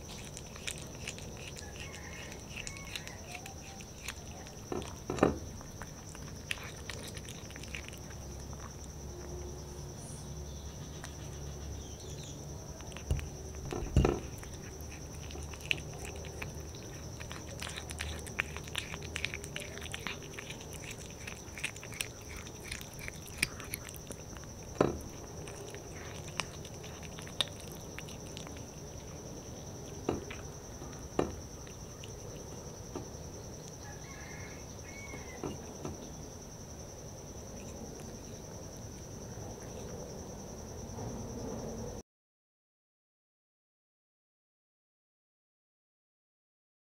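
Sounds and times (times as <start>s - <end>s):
cat chewing and licking: 0.0s - 9.7s, 10.7s - 35.9s, 37.4s - 40.1s
knocks against a plate: 13.7s - 14.3s.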